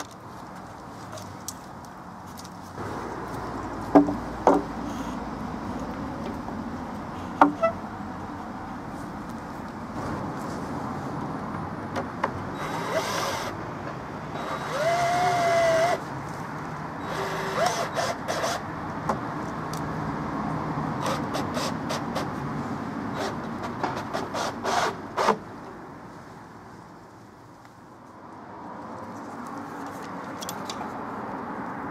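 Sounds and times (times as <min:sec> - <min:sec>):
traffic hum: 0:00.0 - 0:31.9
wood knocking on wood: 0:03.9 - 0:04.8.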